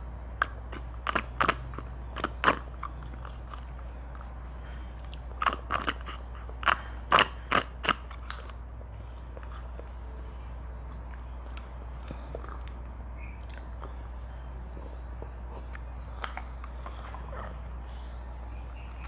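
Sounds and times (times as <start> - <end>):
steady low hum: 0.0 - 19.0
slurping through a straw: 5.4 - 8.6.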